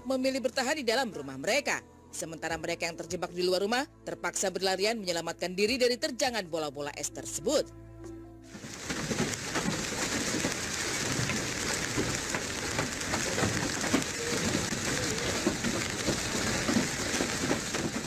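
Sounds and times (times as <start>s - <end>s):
hail pelting pavement and cars: 8.5s - 18.0s.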